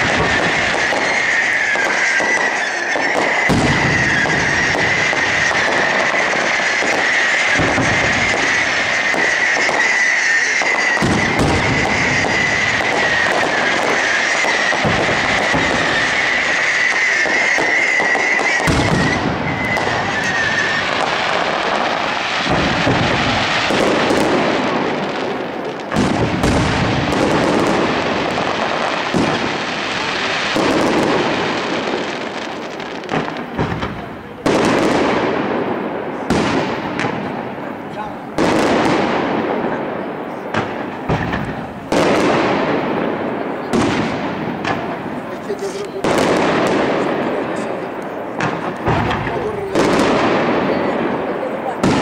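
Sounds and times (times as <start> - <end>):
dense crackle of fireworks: 0.0 - 52.0
fireworks booming: 0.0 - 52.0
high-pitched whistle: 15.8 - 21.0.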